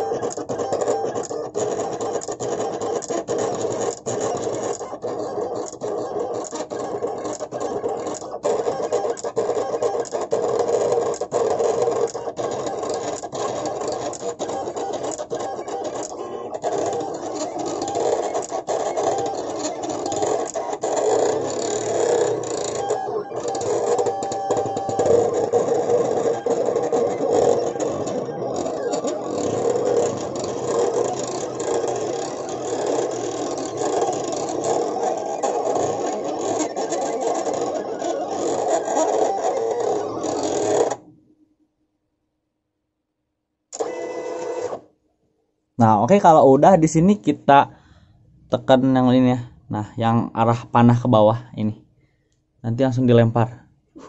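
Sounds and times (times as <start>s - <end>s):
vinyl cutter motors whirring: 0.0s - 41.1s, 43.8s - 44.8s.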